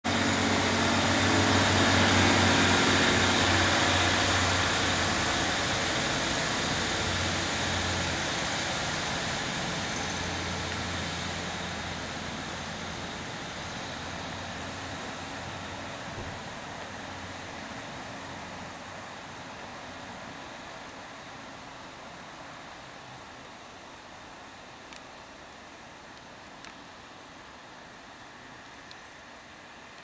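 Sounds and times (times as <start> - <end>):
diesel train pulling away: 0.0 - 22.2.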